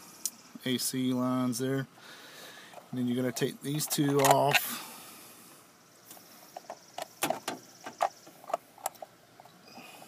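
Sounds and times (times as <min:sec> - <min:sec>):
clicks and taps of metal and plastic: 0:06.5 - 0:09.6.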